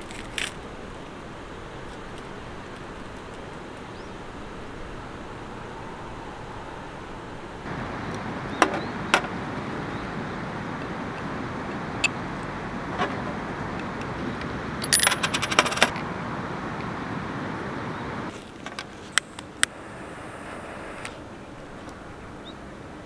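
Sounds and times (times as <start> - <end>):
background hiss: 0.0 - 23.0
metal clicks and clinks: 14.8 - 15.9.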